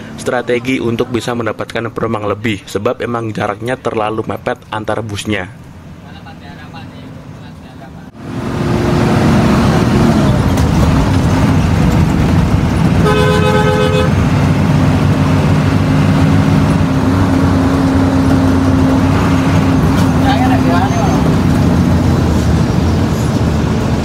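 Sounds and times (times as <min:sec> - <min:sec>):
bus diesel engine running hard: 0:00.0 - 0:01.6, 0:05.8 - 0:24.0
two-note horn blast: 0:13.0 - 0:14.2.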